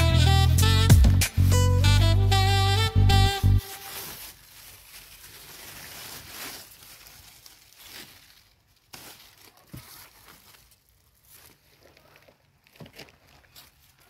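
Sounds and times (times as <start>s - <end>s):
leaves rustling: 3.5s - 12.2s.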